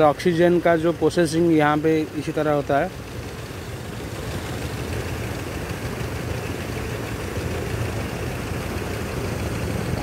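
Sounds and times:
churned water wash: 0.0s - 10.0s
paddlewheel aerators humming: 0.0s - 10.0s.

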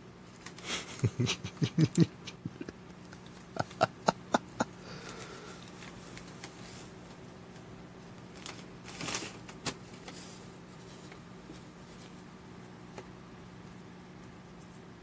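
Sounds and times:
low steady hum: 0.0s - 15.0s
paper bag crinkling: 5.0s - 7.6s, 8.2s - 10.9s.

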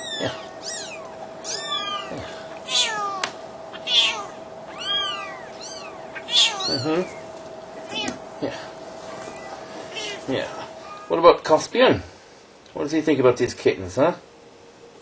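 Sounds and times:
cat hissing: 0.0s - 7.2s, 9.4s - 11.1s
kittens mewing: 0.0s - 11.2s.

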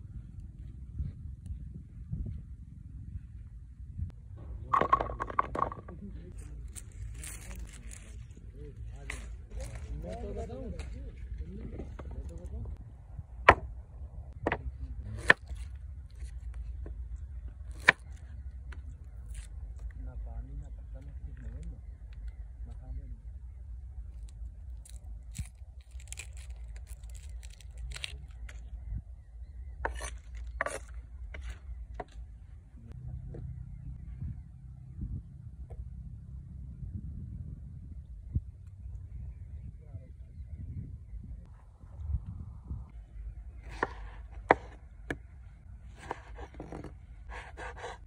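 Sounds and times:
low steady rumble: 0.0s - 48.0s
onions knocking on wooden plank: 4.7s - 5.9s.

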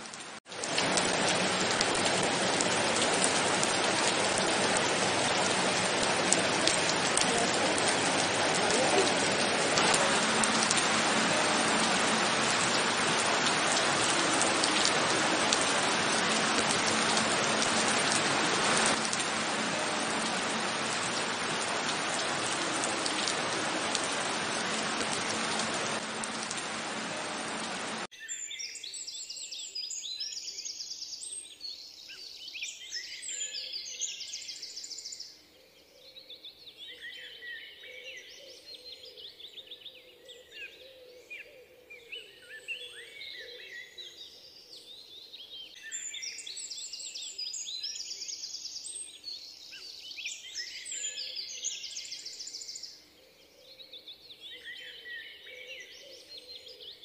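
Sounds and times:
heavy rain downpour: 0.0s - 28.1s.

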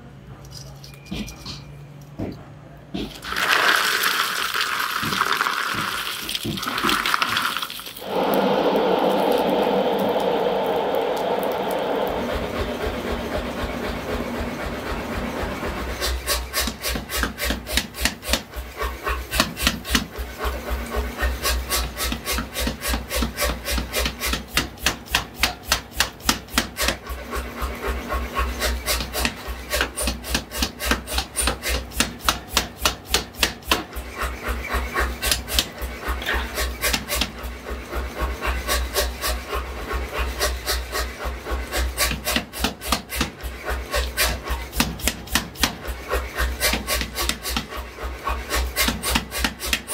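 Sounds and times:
steady low hum: 8.0s - 16.6s
power hammer striking steel: 8.0s - 20.2s.

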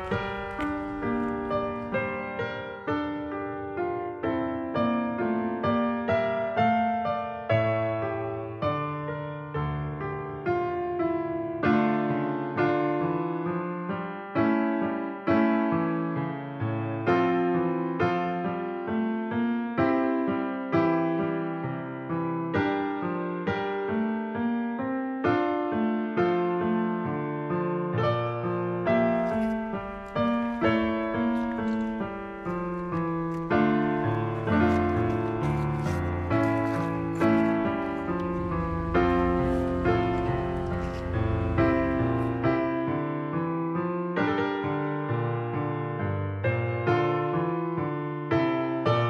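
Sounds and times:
slow piano music: 0.0s - 49.0s
slow keyboard chords: 29.1s - 42.7s.

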